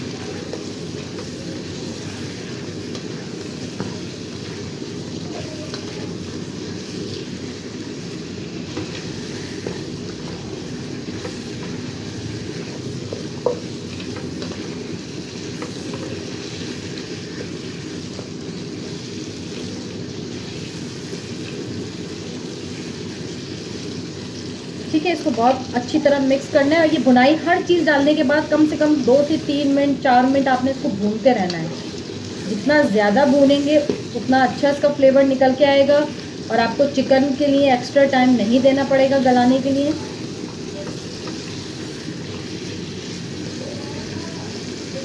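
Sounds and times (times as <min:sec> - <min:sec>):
chicken sizzling in oil: 0:00.0 - 0:45.0.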